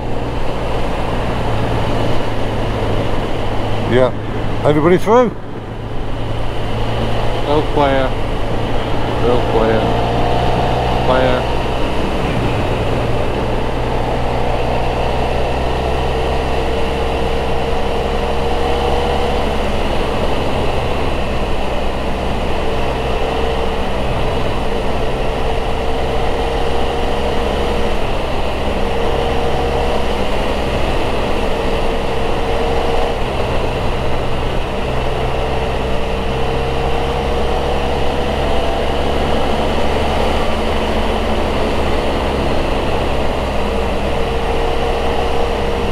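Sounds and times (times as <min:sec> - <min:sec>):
motorcycle engine: 0:00.0 - 0:45.9
wind noise: 0:00.0 - 0:45.9.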